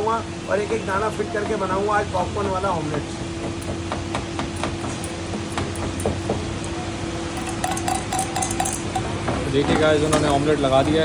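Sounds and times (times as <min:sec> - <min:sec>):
spoon clinking against steel bowl: 0:07.3 - 0:11.0.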